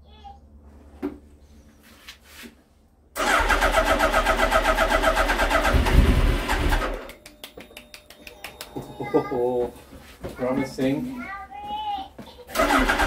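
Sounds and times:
motorcycle engine cranking: 0:03.2 - 0:07.1, 0:12.5 - 0:13.0.

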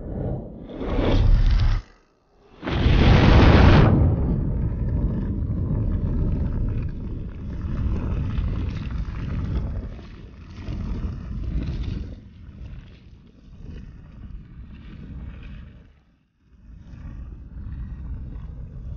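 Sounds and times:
burning grass roaring: 0:00.0 - 0:09.9.

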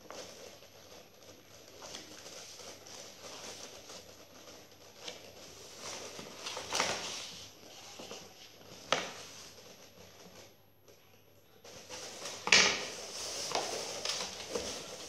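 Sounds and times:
paper rustling and crinkling: 0:00.0 - 0:15.0.

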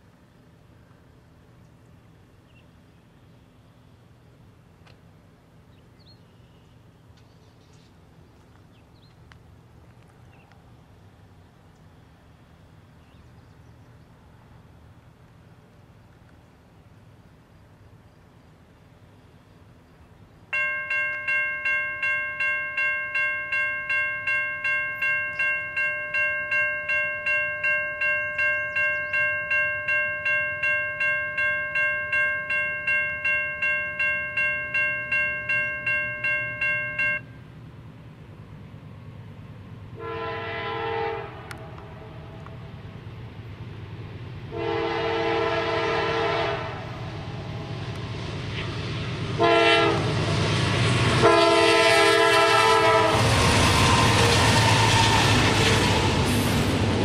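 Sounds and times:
crossing warning bell ringing: 0:20.5 - 0:37.5
locomotive horn blasts: 0:40.0 - 0:42.5, 0:44.5 - 0:47.1, 0:49.4 - 0:50.1, 0:51.2 - 0:56.1.

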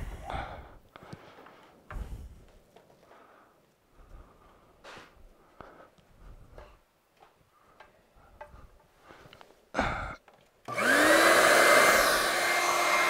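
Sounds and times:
vacuum cleaner motor running: 0:10.7 - 0:13.0.

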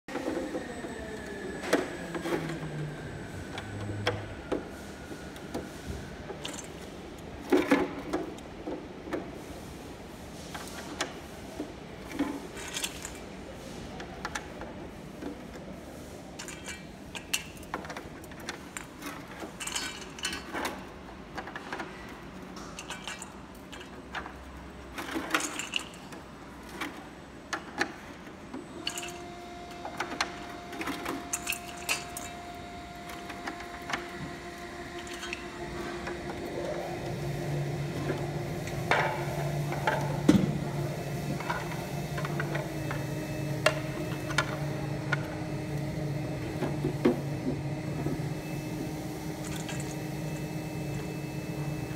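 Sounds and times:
steady hum: 0:28.7 - 0:51.9.

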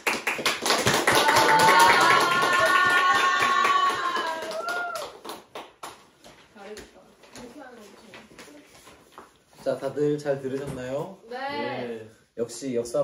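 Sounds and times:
audience applauding: 0:00.0 - 0:06.0
high cheer: 0:00.9 - 0:05.5.

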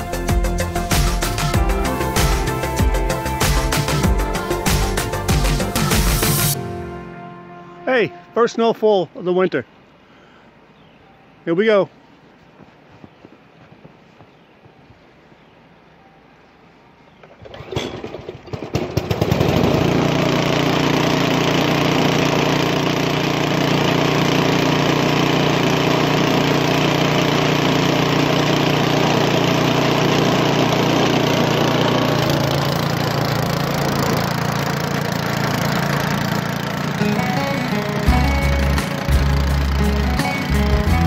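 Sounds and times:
snowblower engine running: 0:00.0 - 0:06.9, 0:17.4 - 0:41.0.

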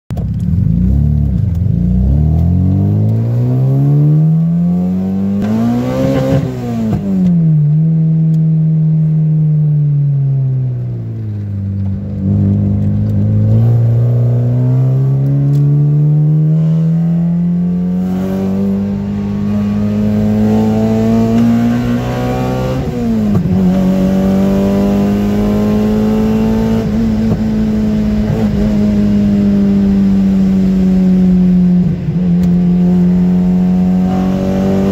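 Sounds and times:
car engine revving: 0:00.2 - 0:34.9.

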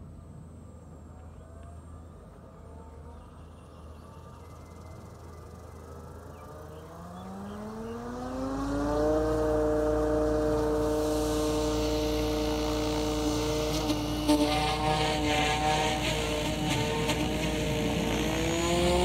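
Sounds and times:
rc helicopter motor and rotor whine: 0:04.7 - 0:19.0.

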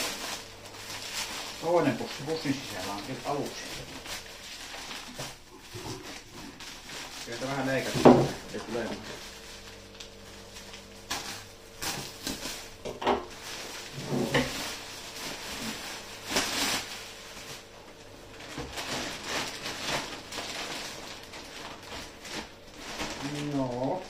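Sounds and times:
plastic packaging crinkling: 0:00.0 - 0:24.0
sharp plastic crackles: 0:00.0 - 0:24.0.

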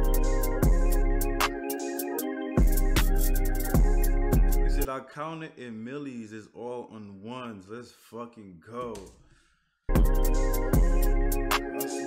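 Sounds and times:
hip hop beat: 0:00.0 - 0:04.9, 0:08.8 - 0:09.2, 0:09.9 - 0:12.0.

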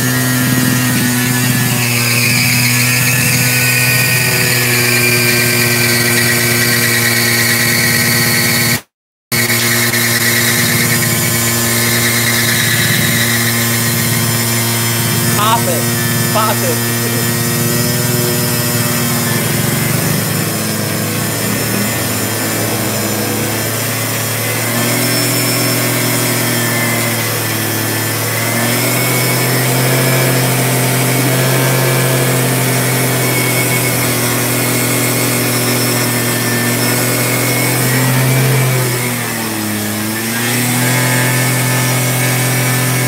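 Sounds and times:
scooter engine at high revs: 0:00.0 - 0:43.0
tire spinning on pavement: 0:09.4 - 0:43.0.

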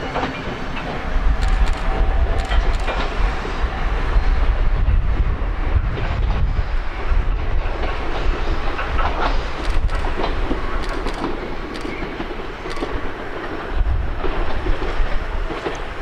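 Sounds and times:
electric train running: 0:00.0 - 0:16.0
wheels clicking over rail joints: 0:07.6 - 0:13.6.

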